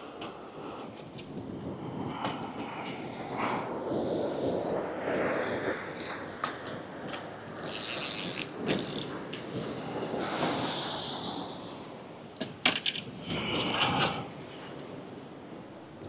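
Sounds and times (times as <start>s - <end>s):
surf washing on rocks: 2.4s - 16.0s
fishing reel cranking: 7.1s - 9.1s
tackle clicks: 7.1s - 9.1s.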